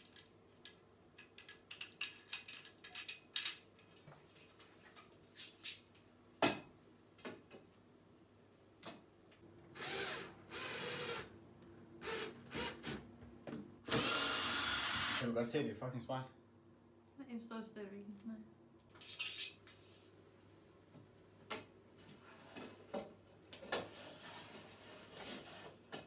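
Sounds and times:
cordless drill running: 0:09.7 - 0:11.3, 0:12.0 - 0:13.0, 0:13.8 - 0:15.2.

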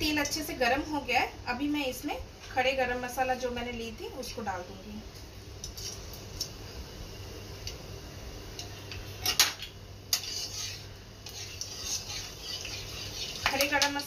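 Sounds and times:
spices sizzling in hot oil: 0:10.0 - 0:14.0.

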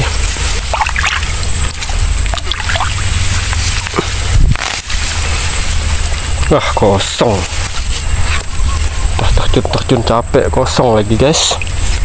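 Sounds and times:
water sloshing around legs: 0:00.0 - 0:04.3
low rumble on microphone: 0:00.0 - 0:12.0.

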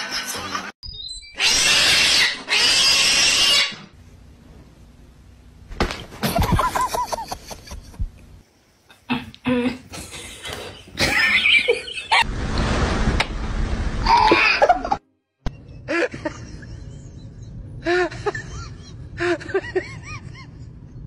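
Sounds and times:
person laughing: 0:06.2 - 0:08.2, 0:14.1 - 0:21.0
loud rushing noise: 0:12.2 - 0:14.2.

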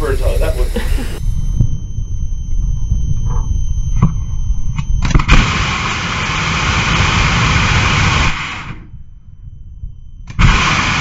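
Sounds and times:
rocket engine hissing roar: 0:00.0 - 0:01.6, 0:05.2 - 0:08.9, 0:10.3 - 0:11.0
wind rumbling on microphone: 0:00.0 - 0:11.0.

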